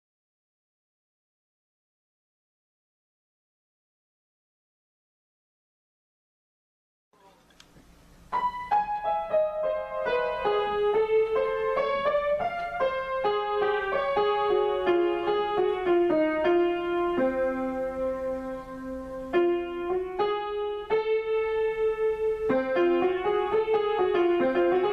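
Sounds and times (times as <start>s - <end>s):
solo grand piano melody: 8.2s - 24.9s.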